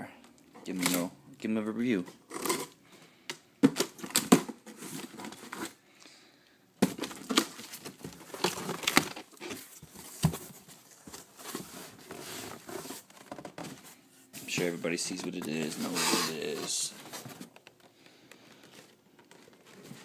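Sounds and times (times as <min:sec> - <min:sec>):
cardboard box crackling and rustling: 0:06.8 - 0:14.0.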